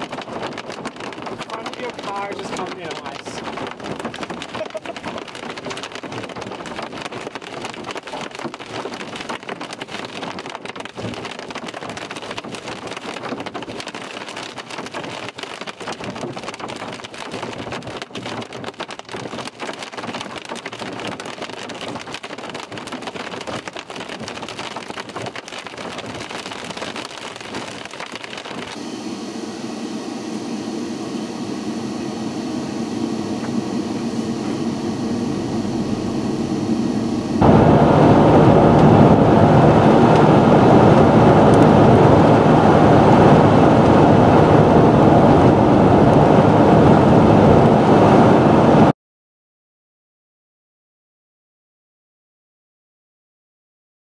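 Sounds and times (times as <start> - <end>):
hail and rain pelting a vehicle: 0.0 - 28.8, 37.4 - 48.7
low rumble: 28.9 - 48.9.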